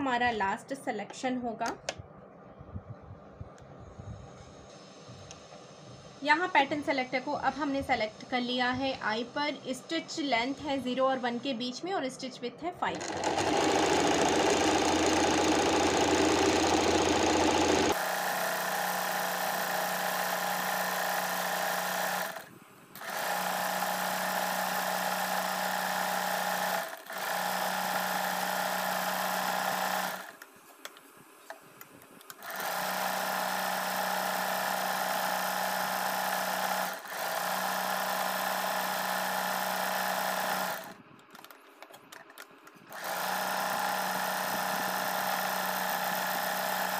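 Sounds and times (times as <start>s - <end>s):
sewing machine whirring: 12.8s - 30.4s, 32.2s - 41.5s, 42.2s - 46.9s.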